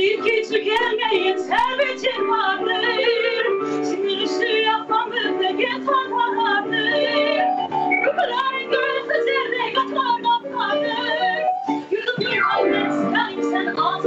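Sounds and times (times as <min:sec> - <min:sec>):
piano accompaniment: 0:00.0 - 0:14.0
woman singing with vibrato: 0:00.0 - 0:14.0.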